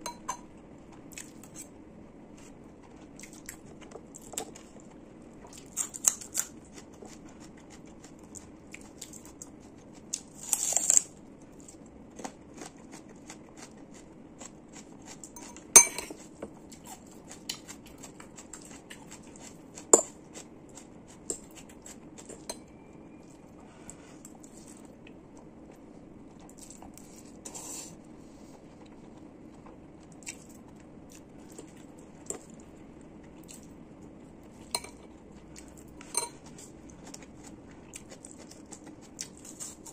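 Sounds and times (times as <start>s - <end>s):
chewing: 2.4s - 22.6s, 24.2s - 27.4s, 28.6s - 33.8s, 34.4s - 39.9s
cutlery scraping ceramic bowl: 15.4s - 16.2s.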